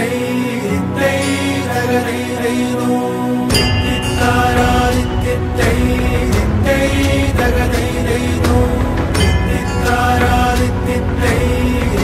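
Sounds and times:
chant-like sung note: 0.0 - 12.0
drum beat: 3.6 - 12.0.

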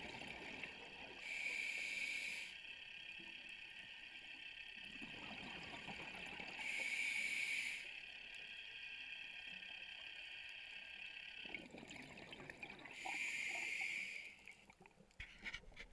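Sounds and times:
regulator hissing inhalation: 1.2 - 2.7, 6.6 - 8.0, 12.9 - 14.4
bubbly gurgling exhalations: 11.4 - 13.0.

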